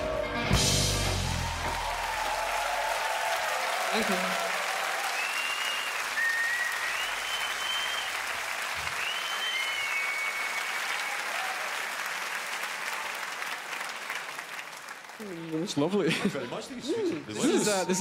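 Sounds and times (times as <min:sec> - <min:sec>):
crowd applauding and cheering: 0:00.0 - 0:18.0
high whistles: 0:05.1 - 0:11.2.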